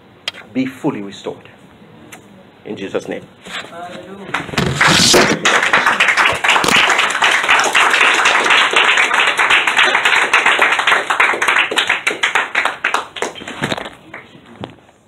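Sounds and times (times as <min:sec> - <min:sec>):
congregation applauding: 0:04.3 - 0:14.3.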